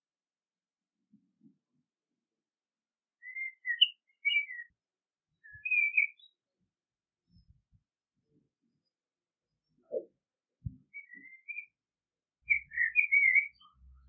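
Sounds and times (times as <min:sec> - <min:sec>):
blackbird singing: 0:03.2 - 0:04.8, 0:05.4 - 0:06.4, 0:10.8 - 0:11.8, 0:12.4 - 0:14.0.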